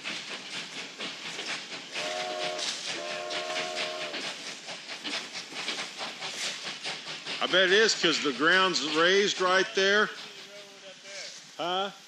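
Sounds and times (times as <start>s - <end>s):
train horn blasts: 2.0s - 4.2s.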